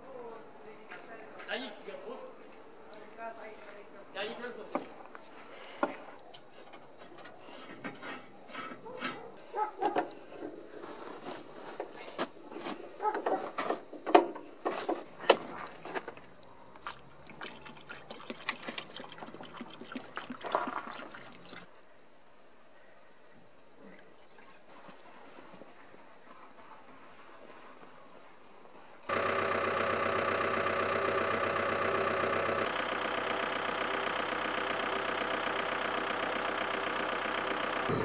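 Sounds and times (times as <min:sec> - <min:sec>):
liquid trickling through funnel: 0:16.4 - 0:21.7
liquid glugging from jerrycan: 0:16.7 - 0:21.7, 0:23.9 - 0:25.0.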